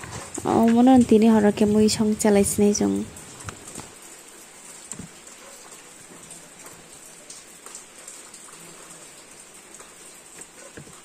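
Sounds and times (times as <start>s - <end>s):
rain hissing: 0.0s - 11.0s
faint taps: 10.4s - 11.0s.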